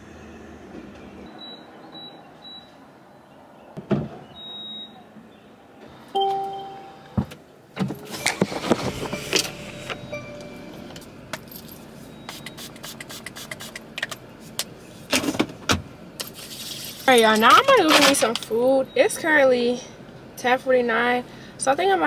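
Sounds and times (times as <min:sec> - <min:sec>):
short beep: 0:06.2 - 0:07.2, 0:09.2 - 0:11.0.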